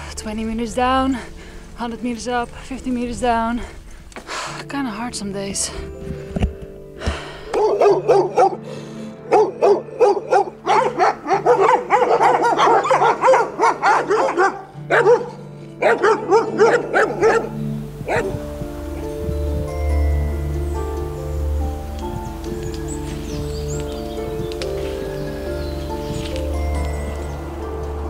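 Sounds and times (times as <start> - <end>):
dogs barking: 7.5 - 8.6, 9.2 - 19.2.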